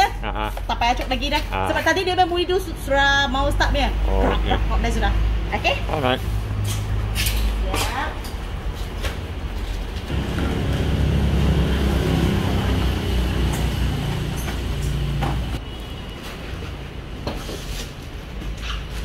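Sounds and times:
engine droning: 10.1s - 15.6s.

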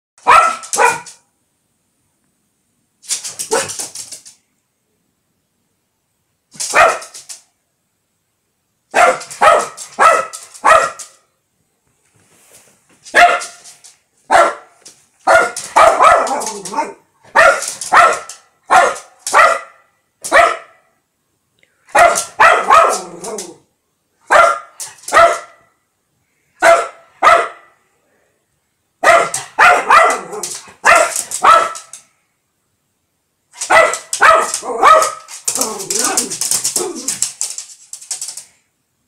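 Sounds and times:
small dog barking: 0.2s - 1.2s, 3.4s - 3.9s, 6.6s - 7.2s, 8.9s - 11.2s, 13.1s - 13.7s, 14.3s - 20.9s, 21.9s - 23.6s, 24.2s - 25.8s, 26.6s - 27.8s, 29.0s - 32.0s, 33.6s - 37.1s.

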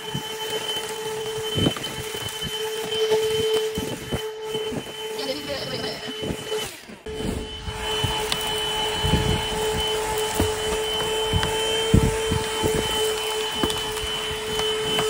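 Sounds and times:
handheld vacuum cleaner running: 0.0s - 15.0s.

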